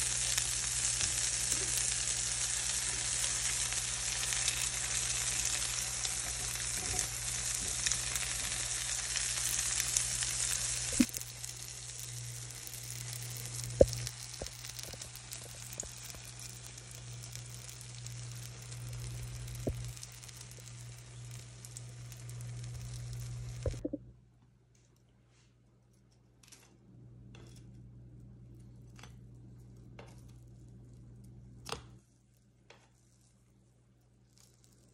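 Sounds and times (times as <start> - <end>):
food frying in oil sizzling: 0.0 - 23.8.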